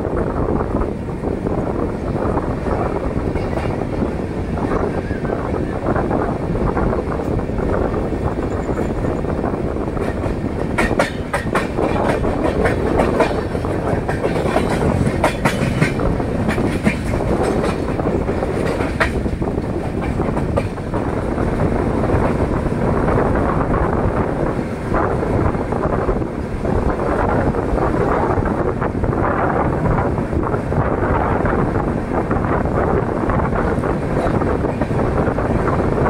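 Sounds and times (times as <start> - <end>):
train wheels rumbling on track: 0.0 - 36.0
sharp clacks and clanks: 10.0 - 21.0.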